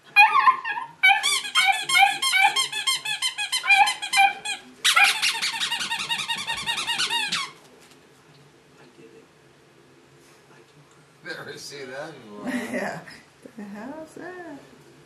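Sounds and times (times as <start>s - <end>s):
puppy barking: 0.2s - 2.8s, 3.6s - 5.6s
toy squeaker squeaking: 1.1s - 7.6s.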